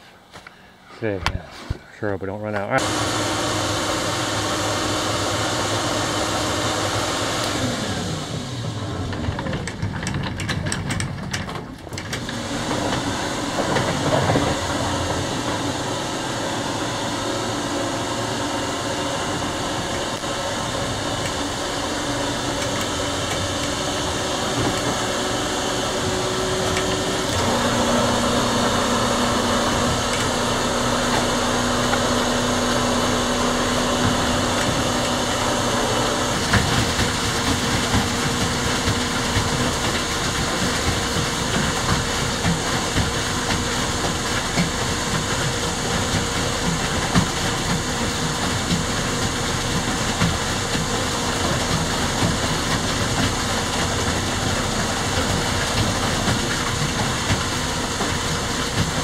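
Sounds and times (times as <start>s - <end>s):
boat motor running: 2.8s - 59.0s
rushing water wash: 2.8s - 59.0s.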